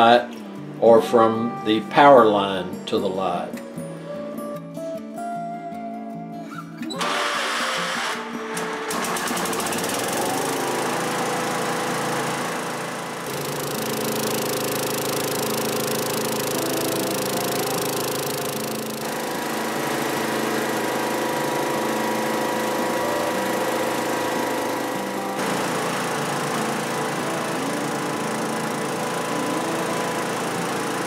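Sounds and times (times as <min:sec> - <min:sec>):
generator engine running: 0:07.0 - 0:31.0.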